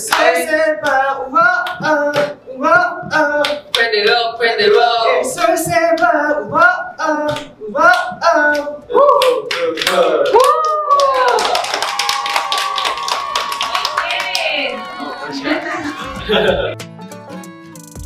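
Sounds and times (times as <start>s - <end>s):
men singing unaccompanied: 0.0s - 8.8s
hand claps: 7.3s - 14.5s.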